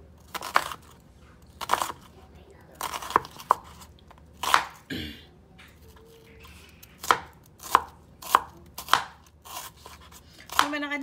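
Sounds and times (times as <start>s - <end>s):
knife slicing onion: 0.2s - 1.0s, 1.6s - 2.1s, 2.8s - 4.9s, 5.8s - 11.0s.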